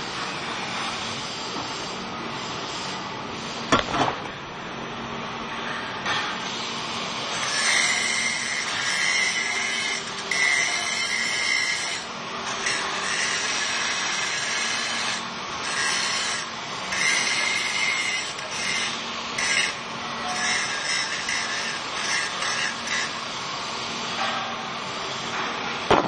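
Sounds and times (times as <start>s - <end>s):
angle grinder grinding metal: 5.6s - 23.3s.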